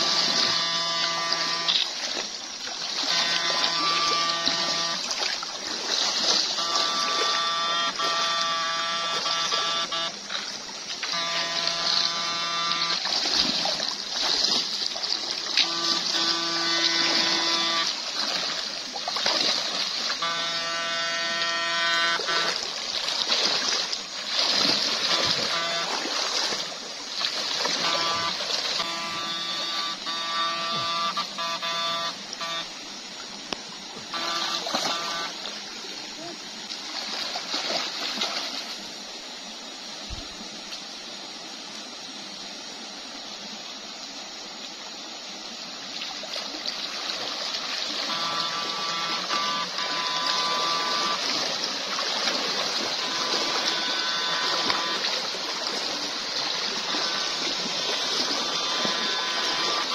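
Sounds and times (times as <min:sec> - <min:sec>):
electric buzzing: 0:00.0 - 0:05.4, 0:06.0 - 0:18.6, 0:19.2 - 0:32.8, 0:34.1 - 0:35.5, 0:47.8 - 0:51.5, 0:52.3 - 0:55.5, 0:56.3 - 0:59.9
wading splashes: 0:00.0 - 0:40.4, 0:45.8 - 0:59.9
stream water rushing: 0:00.0 - 0:59.9.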